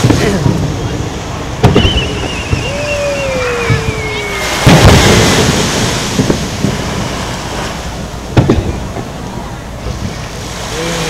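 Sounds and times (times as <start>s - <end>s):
firework whistling: 1.6s - 9.0s
firework boom: 1.6s - 10.2s.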